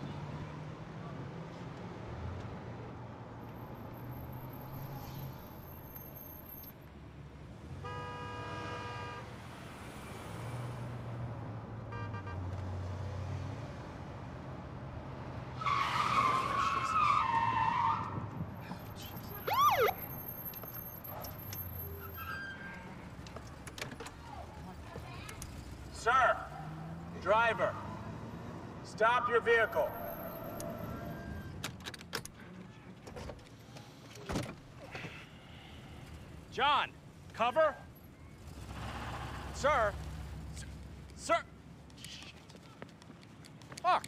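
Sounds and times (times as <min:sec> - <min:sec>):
police siren blasts: 0:19.3 - 0:20.8, 0:29.0 - 0:31.6.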